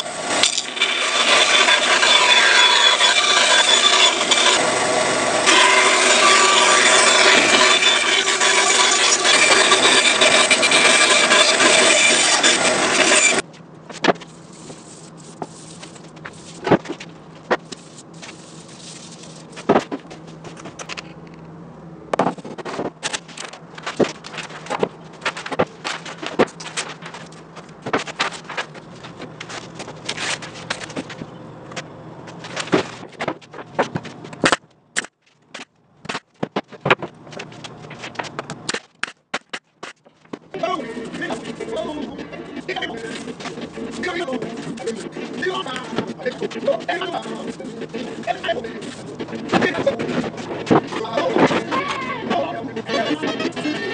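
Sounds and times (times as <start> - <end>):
band saw cutting plywood: 0.0 - 13.4, 39.5 - 53.9.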